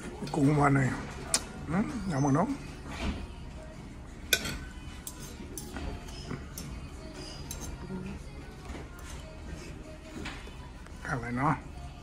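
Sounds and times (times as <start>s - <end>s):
cutlery clinking on plate: 4.3s - 7.8s.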